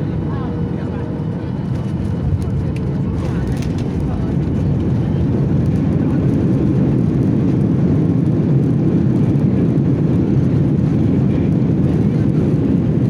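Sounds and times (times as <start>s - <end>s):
airplane cabin rumble: 0.0s - 13.0s.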